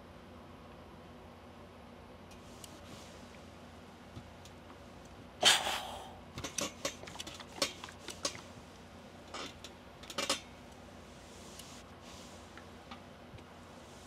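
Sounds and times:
faint hiss: 0:05.4 - 0:06.3.

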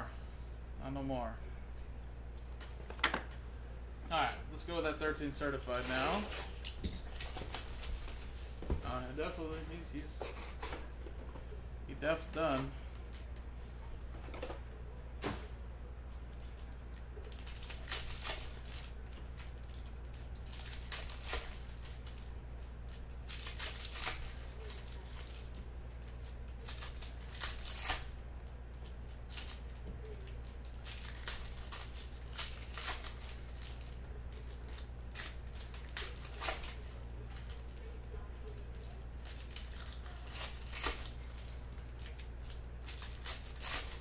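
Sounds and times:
steady low hum: 0:00.0 - 0:44.0
foil wrappers crinkling and tearing: 0:05.4 - 0:10.6, 0:12.0 - 0:13.4, 0:16.3 - 0:44.0.

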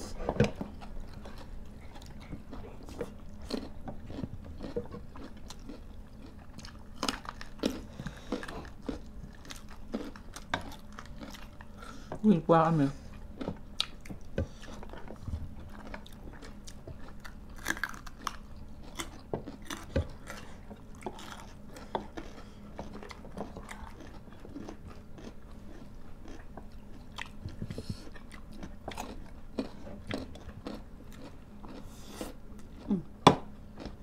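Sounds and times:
people chewing and biting: 0:00.0 - 0:12.2, 0:13.0 - 0:34.0.

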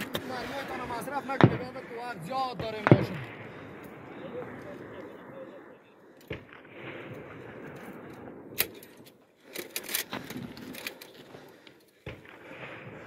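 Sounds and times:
gunshots: 0:00.0 - 0:05.6, 0:06.3 - 0:08.8.

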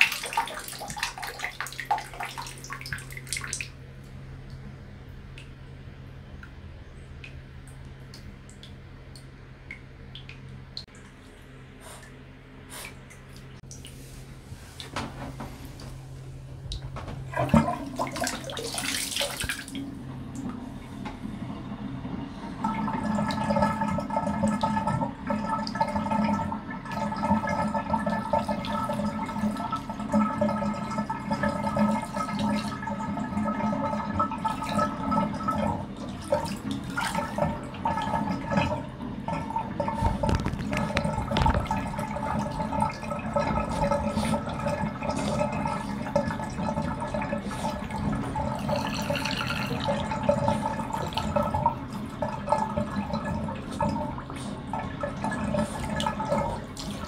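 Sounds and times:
water gurgling down a drain: 0:00.0 - 0:03.8, 0:16.7 - 0:57.0.

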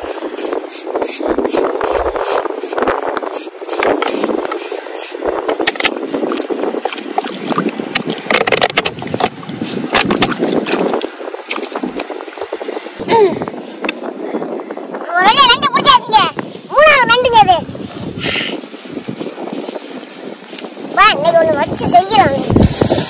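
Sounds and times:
water splashing and sloshing: 0:00.0 - 0:14.2
sharp clicks and splats: 0:03.0 - 0:12.5.

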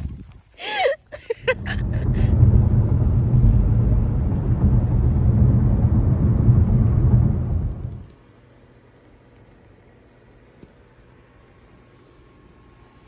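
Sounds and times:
car cabin rumble while driving: 0:01.4 - 0:08.1.

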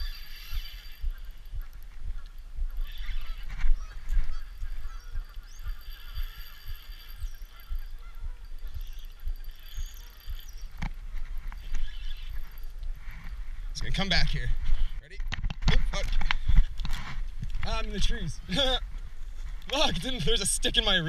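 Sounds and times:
geese honking: 0:00.0 - 0:12.8.

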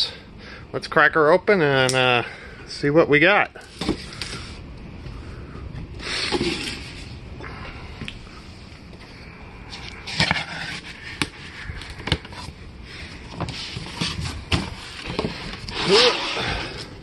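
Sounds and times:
cardboard scraping and rustling: 0:06.0 - 0:07.1, 0:09.8 - 0:12.6, 0:13.2 - 0:16.8.

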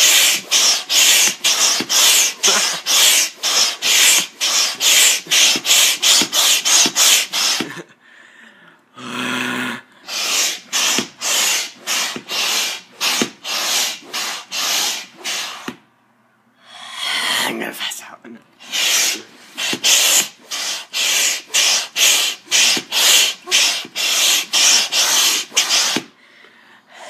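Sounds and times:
air pump strokes rushing air: 0:00.0 - 0:07.8, 0:10.0 - 0:15.8, 0:18.6 - 0:26.2.

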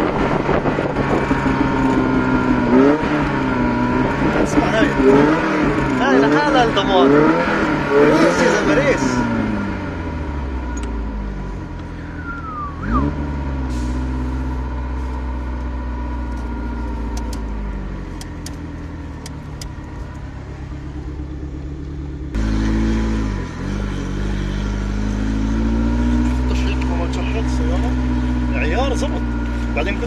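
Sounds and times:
car engine revving: 0:00.0 - 0:30.0.

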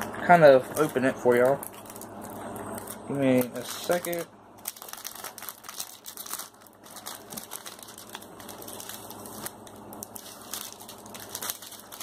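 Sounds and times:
packaging crinkling: 0:00.5 - 0:12.0.

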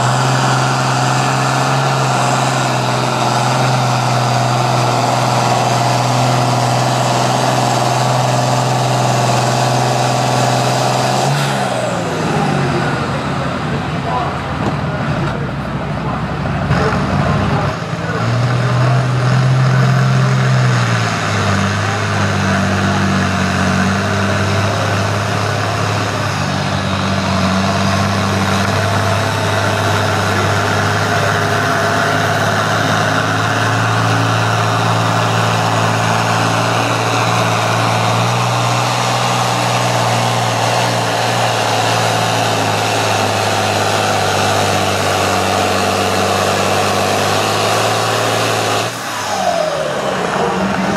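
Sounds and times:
tractor engine running under load: 0:00.0 - 0:50.9.

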